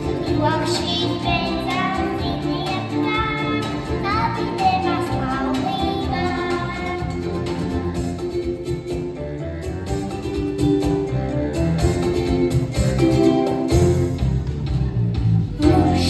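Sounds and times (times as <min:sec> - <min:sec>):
girl singing into a microphone: 0:00.0 - 0:07.4, 0:15.6 - 0:16.0
instrumental accompaniment: 0:00.0 - 0:16.0.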